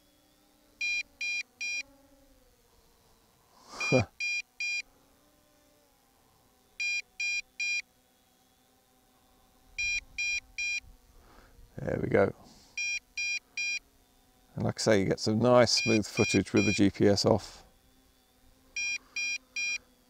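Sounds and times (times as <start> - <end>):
faint steady hum: 0.0 - 20.0
short high electronic beeps: 3.8 - 4.8, 15.8 - 16.8.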